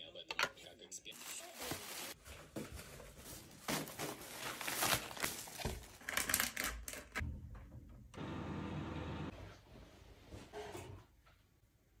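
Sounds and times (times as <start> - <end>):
plastic rustling and crinkling: 1.1 - 7.2.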